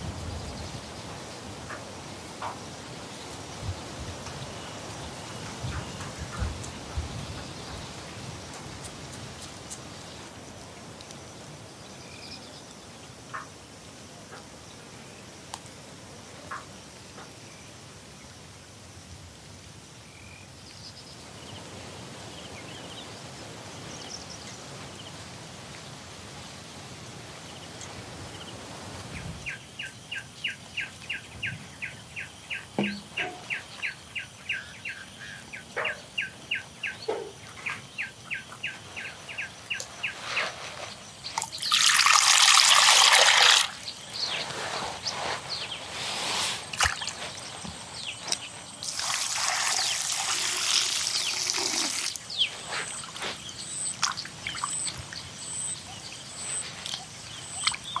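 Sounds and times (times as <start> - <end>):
small splashes: 41.3 - 44.2, 46.6 - 55.2
water pouring: 41.4 - 43.8, 46.7 - 47.2, 48.8 - 52.2.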